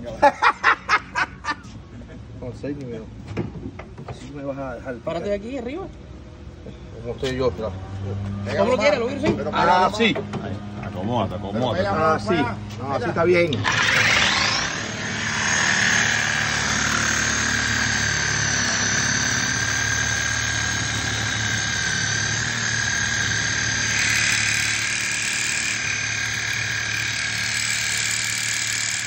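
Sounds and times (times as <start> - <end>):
power tool blade whine: 13.5 - 29.0.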